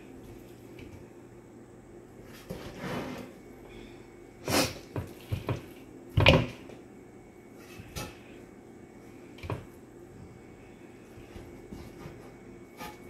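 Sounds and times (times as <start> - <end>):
knocks in air fryer basket: 6.2 - 6.6.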